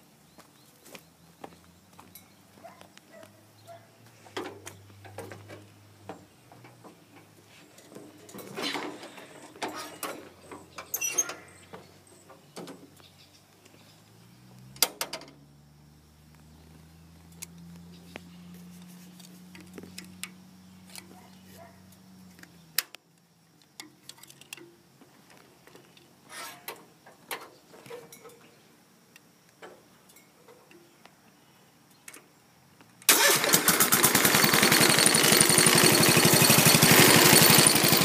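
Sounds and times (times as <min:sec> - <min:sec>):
small clicks and knocks: 0:19.1 - 0:21.2, 0:22.3 - 0:26.1.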